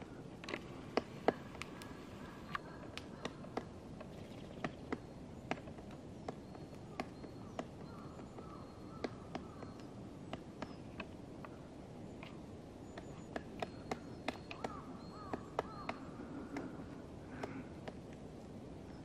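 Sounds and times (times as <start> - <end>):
woodpecker knocking on wood: 2.6 - 11.2, 12.2 - 18.0.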